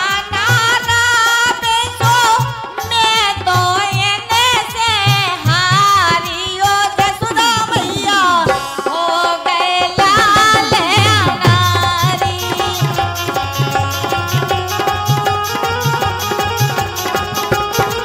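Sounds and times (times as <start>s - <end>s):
woman singing folk song: 0.0s - 13.0s
hand drum steady beat: 1.6s - 18.0s.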